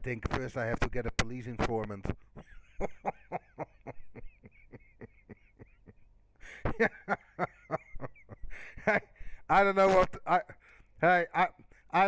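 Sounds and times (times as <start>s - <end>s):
mouth clicks into microphone: 1.0s - 2.2s.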